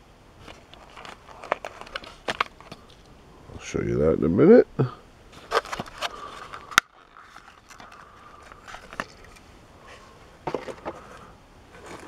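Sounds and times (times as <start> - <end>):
plastic packaging crackling: 0.4 - 3.1, 5.4 - 9.4.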